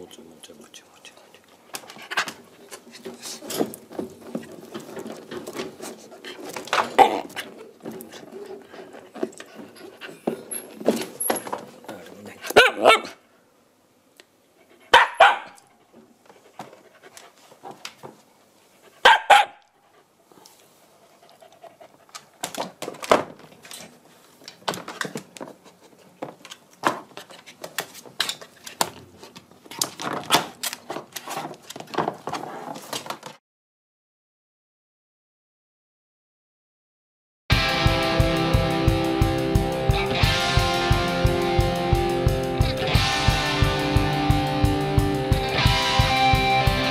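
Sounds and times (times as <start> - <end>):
puppy barking: 6.8 - 7.5, 12.5 - 13.2, 14.9 - 15.6, 19.0 - 19.7
dog panting: 7.2 - 10.7, 15.7 - 17.8, 19.8 - 22.6.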